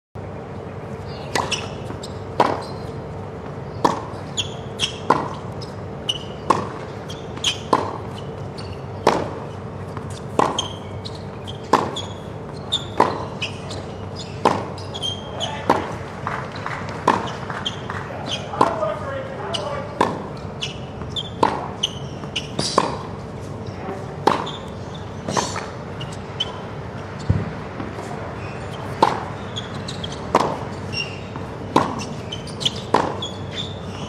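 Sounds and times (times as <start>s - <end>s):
shoes squeaking on court: 0.6s - 34.0s
rackets hitting tennis ball: 1.2s - 34.0s
ball bouncing: 6.2s - 8.4s, 9.0s - 16.0s, 16.8s - 23.1s, 27.2s - 28.0s, 29.0s - 30.7s, 31.4s - 33.2s.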